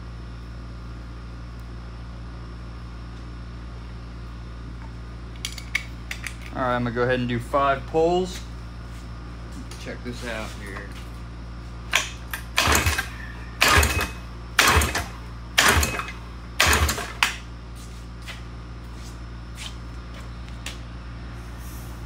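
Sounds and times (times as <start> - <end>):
outboard motor cranked by rope: 11.9 - 17.3.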